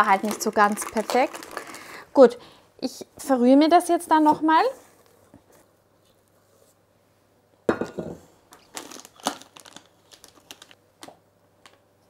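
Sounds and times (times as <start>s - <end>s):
plastic piping bag crinkling: 0.0s - 2.1s, 8.6s - 11.8s.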